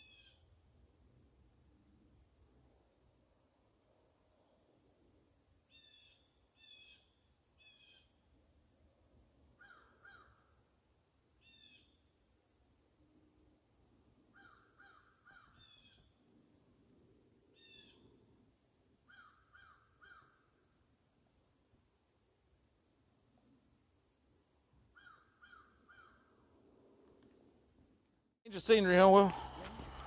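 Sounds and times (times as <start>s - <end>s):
faint bird calls: 0.0s - 0.5s, 5.7s - 8.2s, 9.5s - 10.6s, 11.4s - 12.2s, 14.2s - 16.3s, 17.4s - 18.3s, 19.0s - 20.8s, 24.9s - 26.6s.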